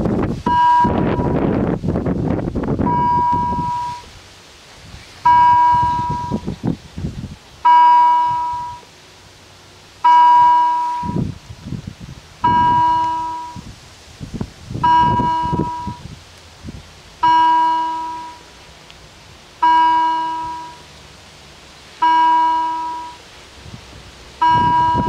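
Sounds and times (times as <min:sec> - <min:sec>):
level crossing warning bell: 0:00.4 - 0:01.4, 0:02.8 - 0:04.1, 0:05.3 - 0:06.5, 0:07.6 - 0:08.9, 0:10.0 - 0:11.2, 0:12.4 - 0:13.6, 0:14.8 - 0:16.0, 0:17.2 - 0:18.5, 0:19.6 - 0:20.9, 0:22.0 - 0:23.3, 0:24.4 - 0:25.0.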